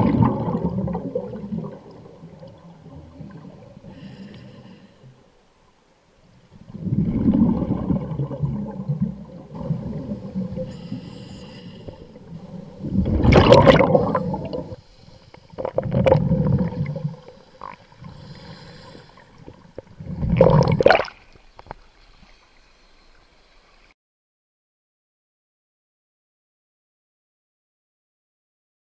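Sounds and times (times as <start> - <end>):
bubbles gurgling underwater: 0.0 - 3.8, 6.6 - 10.7, 12.2 - 14.8, 15.6 - 17.8, 20.0 - 21.2.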